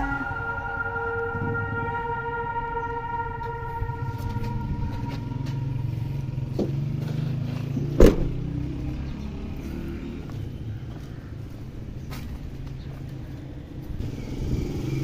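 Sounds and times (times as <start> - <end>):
low engine hum: 0.0 - 15.0
car tailgate slamming shut: 8.0 - 8.3.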